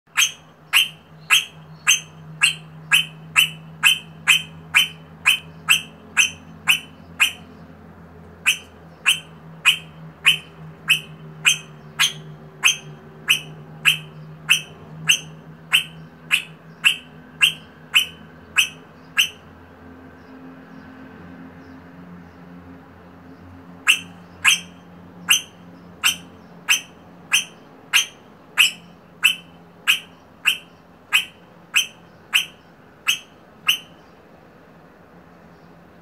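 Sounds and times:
parrot short sharp calls: 0.1s - 7.5s, 8.4s - 19.4s, 23.9s - 24.7s, 25.3s - 34.0s
steady low hum: 0.1s - 20.2s.

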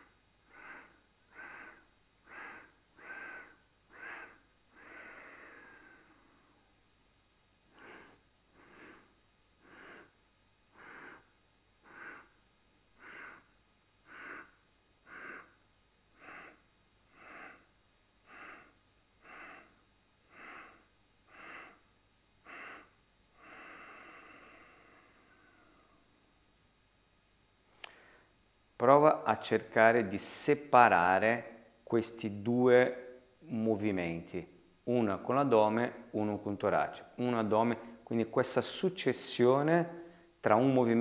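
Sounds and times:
long continuous breath: 0.0s - 6.8s, 7.7s - 12.4s, 13.0s - 26.3s, 27.8s - 28.4s, 37.0s - 38.2s, 39.9s - 40.4s.

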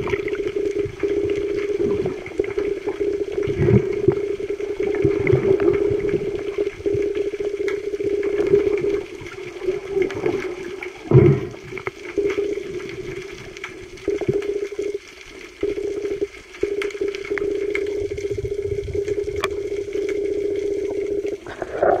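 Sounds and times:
underwater water noise: 0.0s - 22.0s
clicks: 6.8s - 8.9s, 15.6s - 21.4s.

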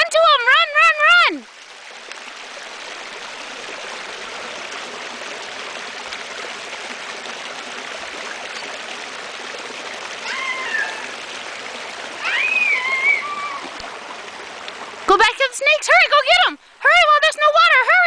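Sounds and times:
water spraying from sprinkler: 0.8s - 18.0s
high-pitched voice crying out: 10.2s - 11.2s, 12.2s - 13.7s.

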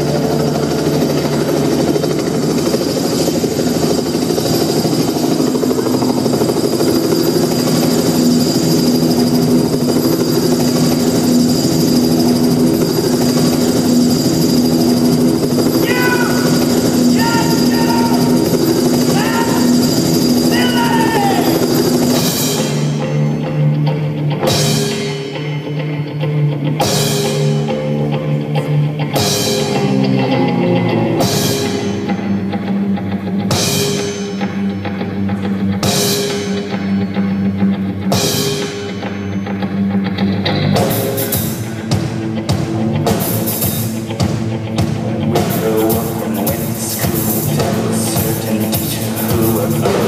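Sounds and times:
live rock band playing: 0.0s - 4.3s, 5.0s - 50.0s
sharp ringing accent: 0.0s - 23.7s
held bass line: 0.0s - 50.0s
drum beat: 9.2s - 22.9s, 40.8s - 50.0s.

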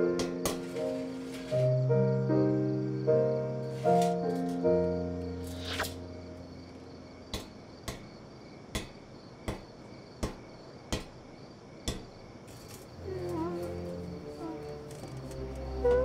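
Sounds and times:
night insects chirring: 0.0s - 16.0s
metal knocking on paving stones: 7.3s - 11.2s, 11.9s - 12.2s.

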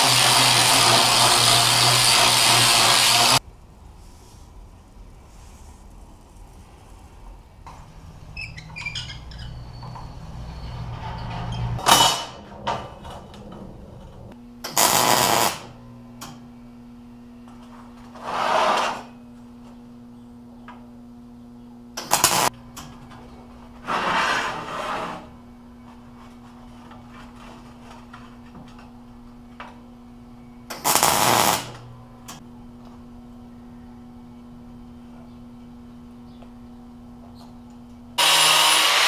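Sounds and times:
tack welds crackling and hissing: 0.0s - 3.4s, 14.6s - 15.7s, 22.0s - 22.6s, 30.7s - 31.8s
welder humming: 0.0s - 3.4s, 9.8s - 19.4s, 22.0s - 22.9s, 30.7s - 32.4s, 38.2s - 39.0s
metal bender rumbling and squeaking: 8.0s - 14.4s
loud metal clank: 10.8s - 14.2s.

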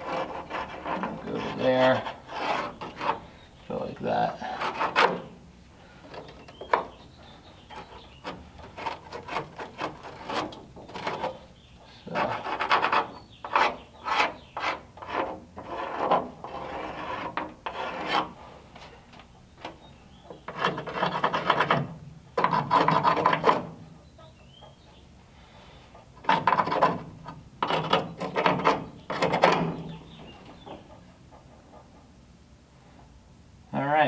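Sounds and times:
marker rasping over rusted steel: 0.0s - 5.4s, 6.0s - 18.9s, 19.6s - 23.8s.

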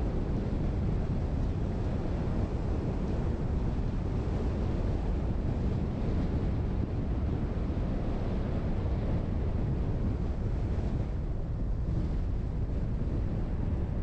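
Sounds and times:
car road and wind noise: 0.0s - 14.0s.

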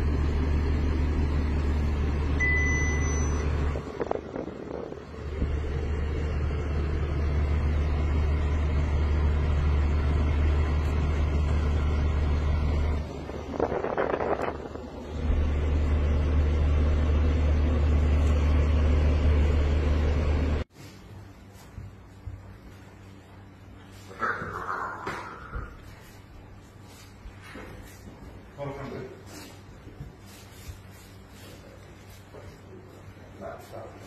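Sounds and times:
car engine rumble: 0.0s - 20.7s
road noise: 3.4s - 20.6s
rustling scrape: 29.2s - 34.0s.

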